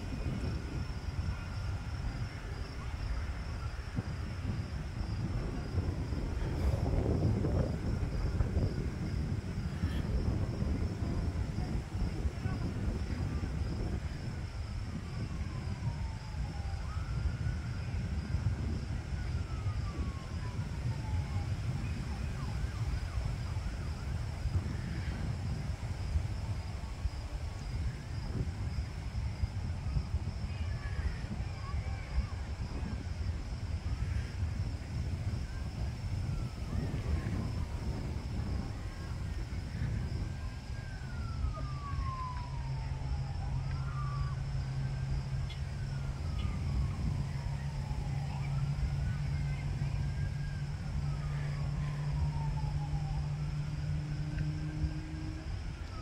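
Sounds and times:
emergency siren wailing: 0:00.0 - 0:26.2, 0:33.4 - 0:56.0
wind buffeting microphone: 0:00.0 - 0:56.0
faint falling whine: 0:35.8 - 0:56.0.

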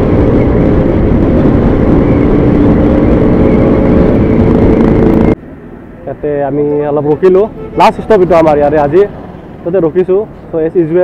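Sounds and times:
wind rushing over microphone: 0:00.0 - 0:05.4
motorcycle engine steady note: 0:00.0 - 0:10.5.

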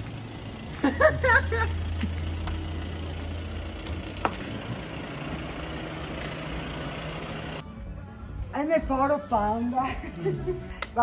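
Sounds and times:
car engine idling: 0:00.0 - 0:07.6.

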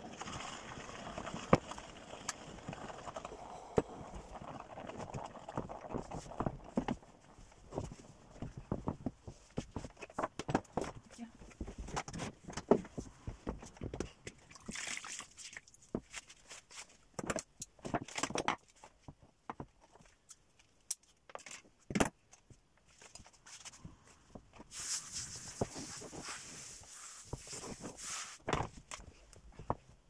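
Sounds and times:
cloth rustling: 0:24.6 - 0:29.8.

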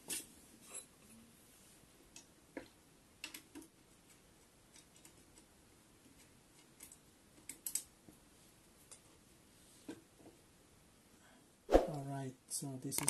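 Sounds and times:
faint clicks and metal taps: 0:02.1 - 0:08.2, 0:08.8 - 0:09.2.

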